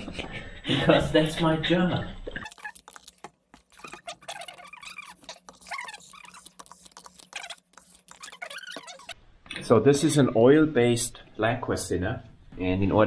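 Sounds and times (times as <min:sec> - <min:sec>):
pump sprayer spurts and spatter: 0:02.4 - 0:09.2
brief squeaks: 0:03.7 - 0:09.2.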